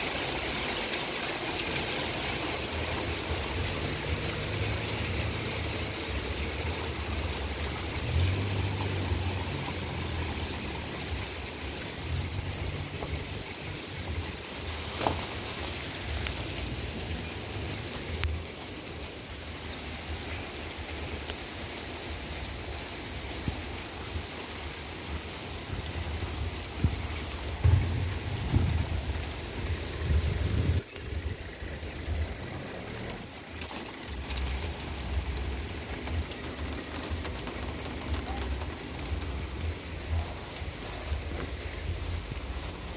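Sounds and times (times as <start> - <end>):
hail and rain falling: 0.0 - 42.9
sharp knocks: 27.6 - 28.9.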